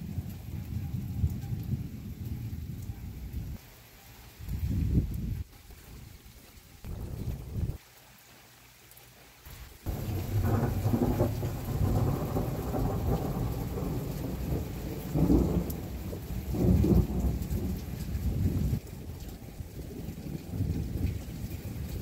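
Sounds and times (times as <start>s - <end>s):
thunder rumbling: 0.0s - 3.6s, 6.8s - 7.8s, 9.9s - 22.0s
heavy rain hiss: 1.8s - 22.0s.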